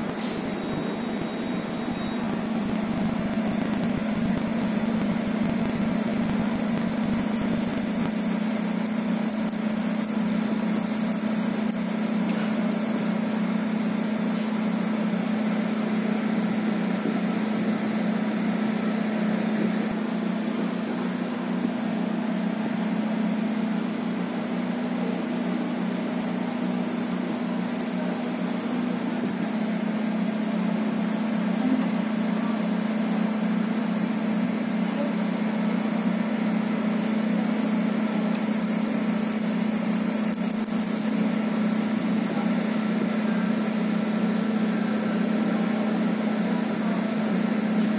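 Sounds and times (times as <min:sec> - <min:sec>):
machine humming: 0:00.0 - 0:14.2, 0:36.4 - 0:42.4
fan noise: 0:00.0 - 0:47.9.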